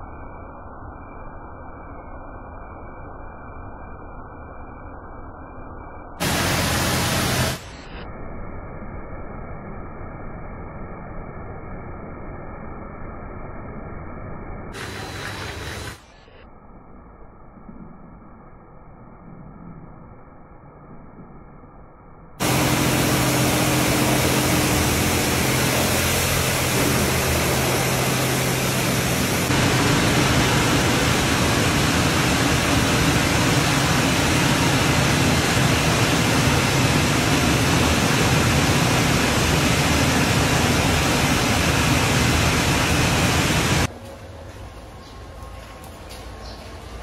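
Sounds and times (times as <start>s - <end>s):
low motor hum: 6.2s - 7.8s, 22.4s - 47.0s
car wash rushing hiss: 6.2s - 8.0s, 14.7s - 16.4s, 22.4s - 43.9s.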